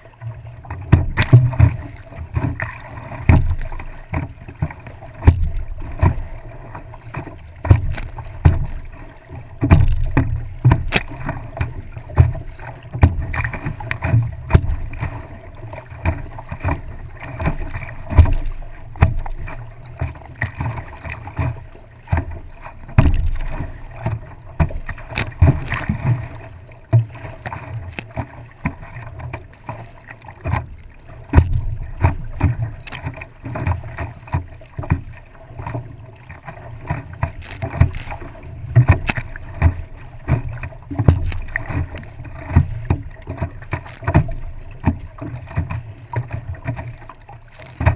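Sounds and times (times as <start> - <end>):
water slapping against board: 0.0 - 47.9.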